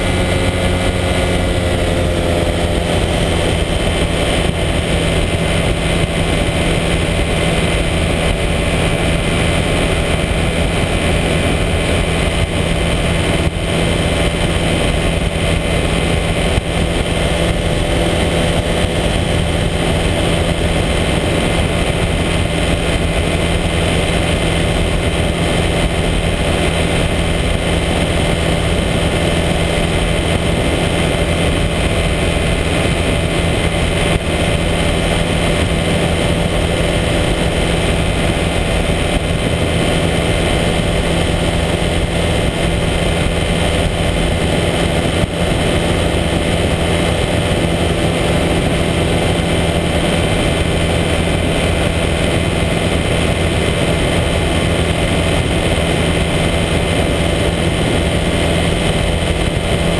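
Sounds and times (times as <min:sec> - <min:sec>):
engine and propeller drone: 0:00.0 - 0:59.9
rushing wind noise: 0:00.0 - 0:59.9.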